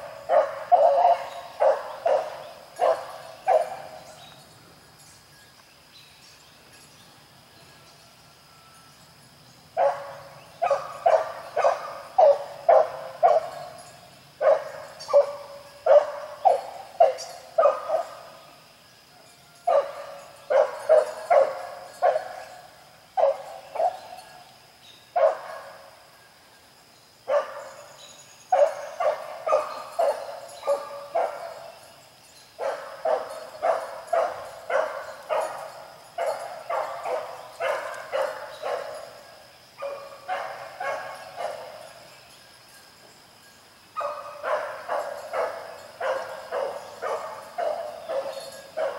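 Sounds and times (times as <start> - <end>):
hound baying: 0.0 - 4.2, 9.8 - 18.3, 19.6 - 24.3, 28.5 - 31.8, 32.6 - 42.1, 44.0 - 48.9.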